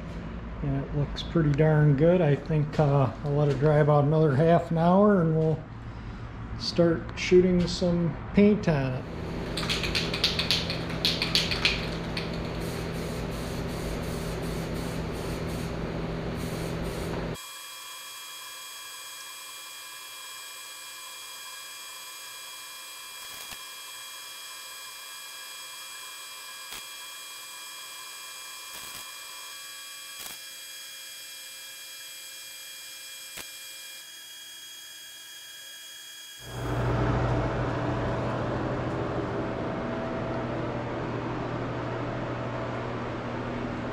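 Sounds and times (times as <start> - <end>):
steady hum: 0.0 - 17.4, 36.4 - 43.9
aerosol can spraying: 9.4 - 15.8, 16.4 - 17.2
louder lower hum: 36.4 - 43.9.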